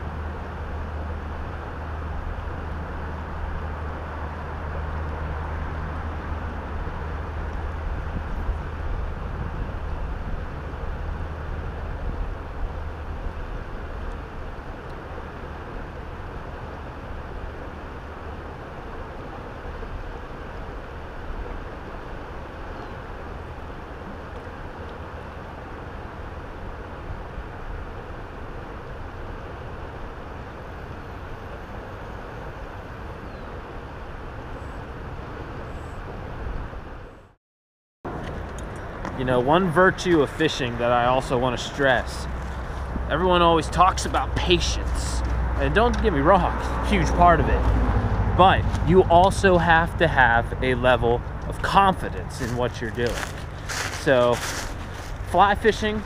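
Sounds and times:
stream flowing: 0:00.0 - 0:34.6, 0:38.1 - 0:56.0
wind buffeting microphone: 0:05.9 - 0:27.9, 0:38.3 - 0:56.0
river current rushing: 0:38.1 - 0:56.0
deep low rumble: 0:38.9 - 0:55.4.

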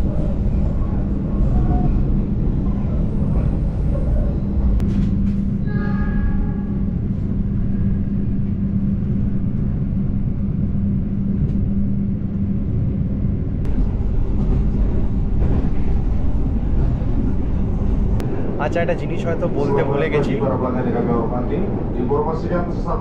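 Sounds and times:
constant low hum: 0:00.0 - 0:23.0
train wheels rumbling on rails: 0:00.0 - 0:23.0.

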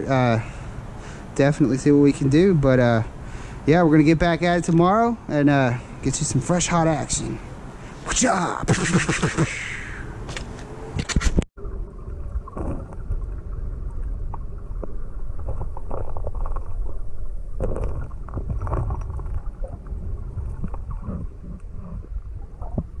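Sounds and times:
underwater river rushing: 0:11.6 - 0:23.0.

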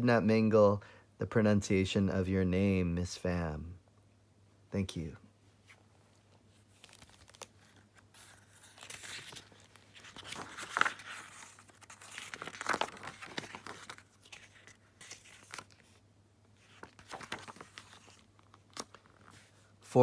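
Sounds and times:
book pages turning: 0:05.7 - 0:19.7.

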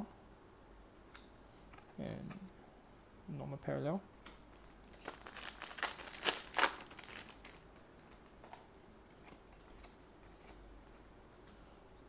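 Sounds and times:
foil wrapper tearing and crinkling: 0:04.6 - 0:08.2.

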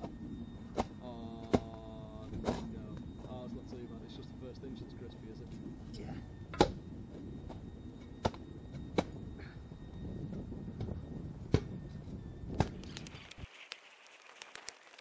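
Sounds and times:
faint scrapes and clicks: 0:12.7 - 0:15.0.

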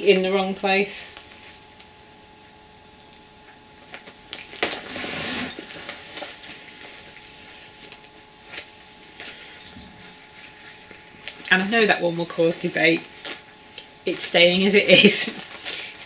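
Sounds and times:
plastic bag crinkling: 0:03.8 - 0:11.8, 0:14.6 - 0:16.0.

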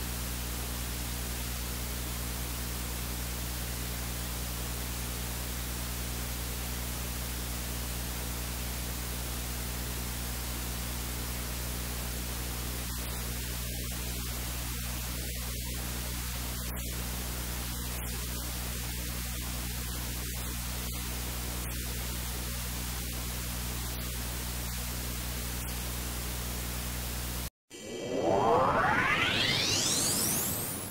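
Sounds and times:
synthesized whoosh: 0:27.7 - 0:30.9.

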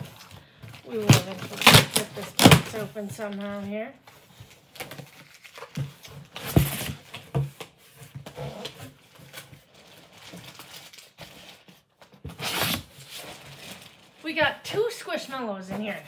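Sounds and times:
cardboard rustling: 0:00.0 - 0:16.0
cardboard box being torn open: 0:01.0 - 0:02.8, 0:12.3 - 0:13.7.

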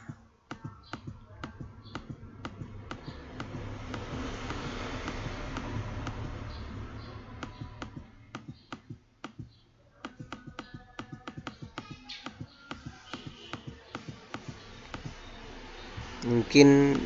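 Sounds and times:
computer mouse clicking: 0:00.5 - 0:06.4.

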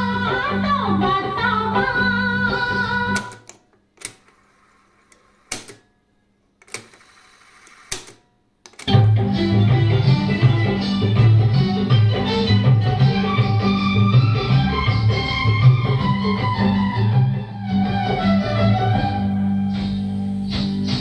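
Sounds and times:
music with singing: 0:00.0 - 0:03.4, 0:08.9 - 0:21.0
guitar music: 0:08.9 - 0:21.0.

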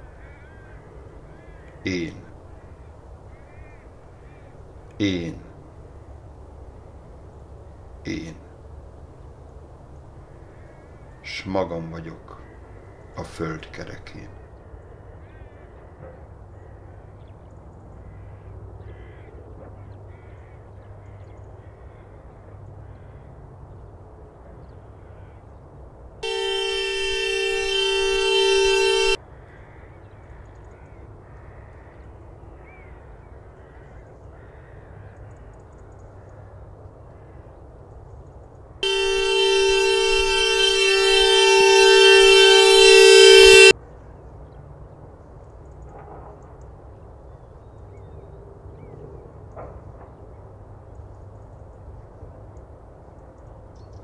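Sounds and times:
faint outdoor background: 0:00.0 - 0:54.0
two-note horn blasts: 0:26.2 - 0:29.2, 0:38.8 - 0:43.7.

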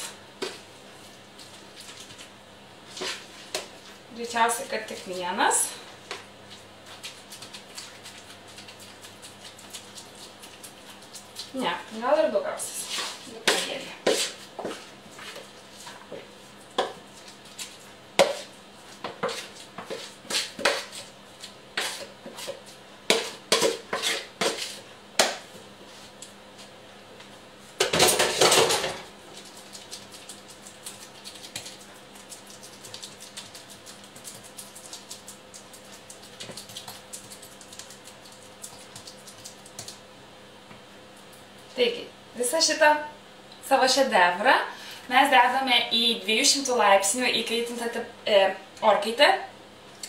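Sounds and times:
spoon scraping a mixing bowl: 0:12.7 - 0:24.9.

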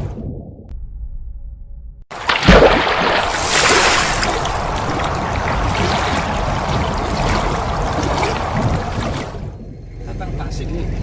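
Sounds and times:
rushing pouring water: 0:02.1 - 0:09.5.

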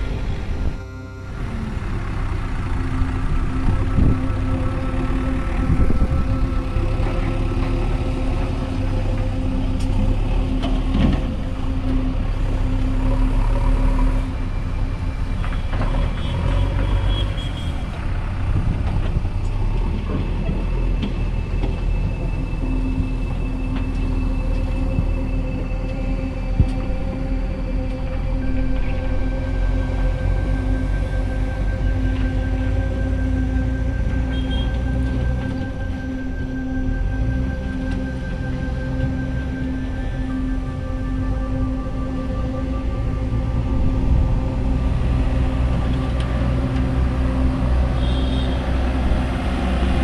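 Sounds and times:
high beeping: 0:00.0 - 0:08.4
diesel engine running: 0:00.0 - 0:50.0.

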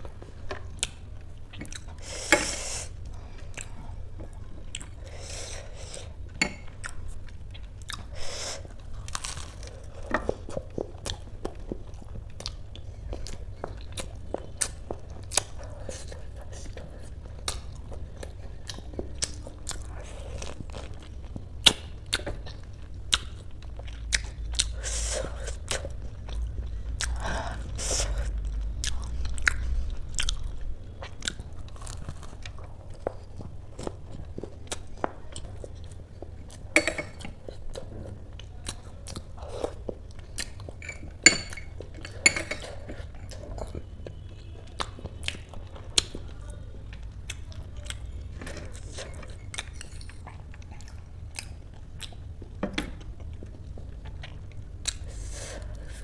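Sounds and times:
crunchy chewing and biting: 0:06.8 - 0:46.2.

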